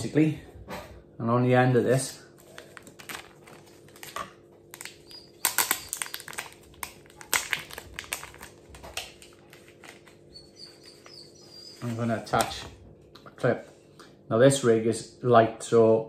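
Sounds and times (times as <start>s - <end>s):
plastic packet crinkling: 2.4s - 10.3s.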